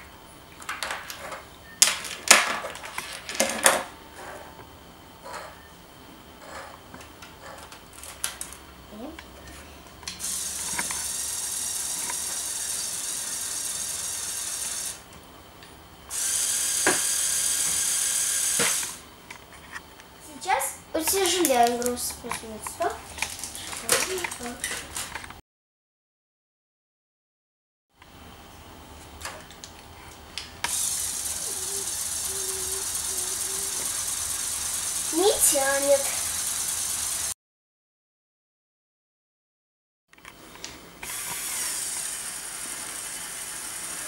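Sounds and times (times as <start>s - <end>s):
toy motor whirring: 10.2s - 15.1s, 16.1s - 19.0s, 30.7s - 37.4s, 41.0s - 44.0s.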